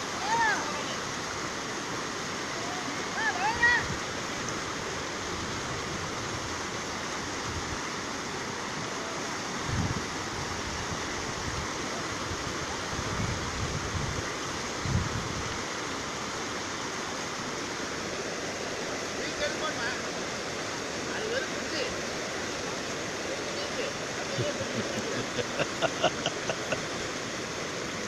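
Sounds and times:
river rushing: 0:00.0 - 0:28.0
wind bumps on microphone: 0:09.6 - 0:10.1, 0:14.8 - 0:15.5.

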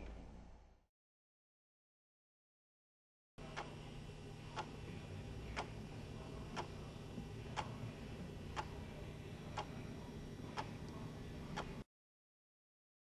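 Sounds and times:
clock ticking: 0:03.4 - 0:03.8, 0:04.5 - 0:04.8, 0:05.5 - 0:05.8, 0:06.4 - 0:07.8, 0:08.5 - 0:08.8, 0:09.5 - 0:09.8, 0:10.5 - 0:11.8
steady low hum: 0:03.4 - 0:11.9.

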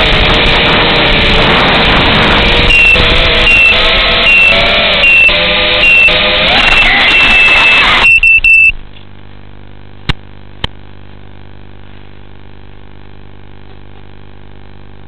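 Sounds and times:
steady low hum: 0:00.0 - 0:06.5, 0:07.7 - 0:15.0
drone motors whining: 0:00.0 - 0:08.8.

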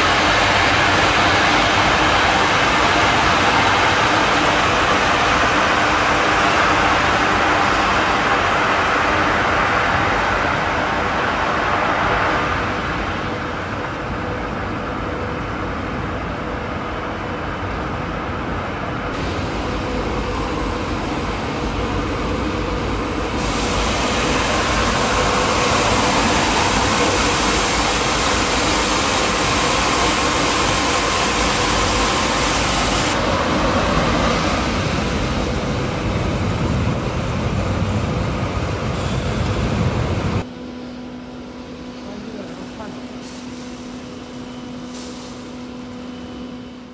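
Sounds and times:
machinery running: 0:19.2 - 0:46.9.

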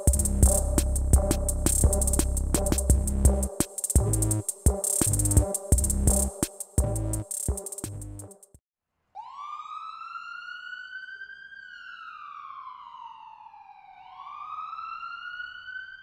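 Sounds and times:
siren wailing: 0:09.2 - 0:16.0.

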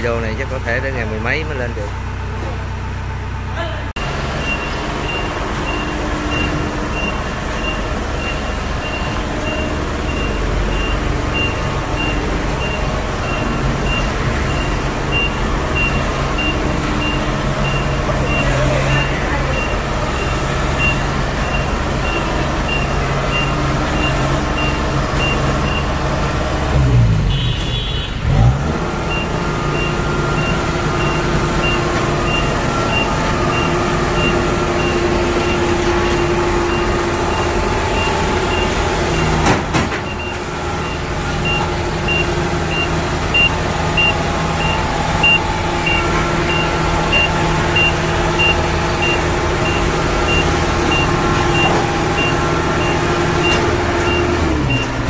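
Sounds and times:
diesel engine running: 0:00.0 - 0:55.0
high travel alarm beeps: 0:04.4 - 0:26.0, 0:29.1 - 0:39.4, 0:40.0 - 0:54.9.

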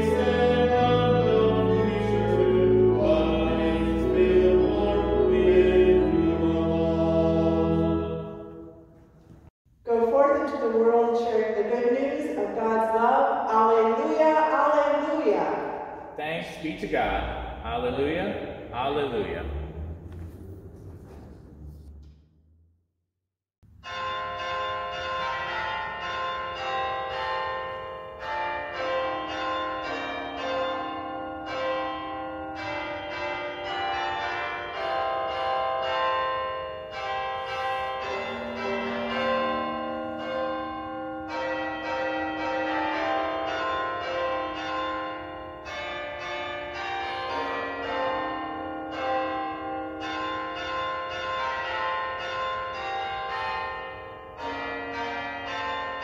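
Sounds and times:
church bells ringing a peal: 0:00.0 - 0:08.9, 0:23.6 - 0:56.0.

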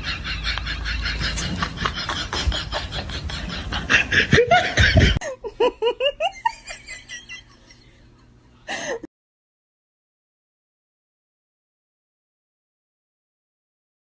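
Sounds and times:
person laughing and giggling: 0:00.0 - 0:09.1.

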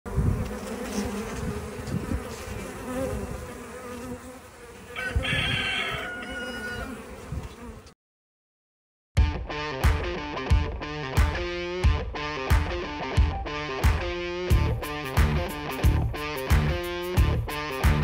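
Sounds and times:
bees buzzing: 0:00.1 - 0:08.0.

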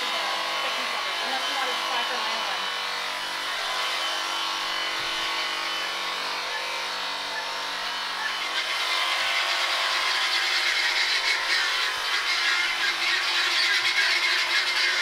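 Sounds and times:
electric sheep shears buzzing: 0:00.0 - 0:15.0.

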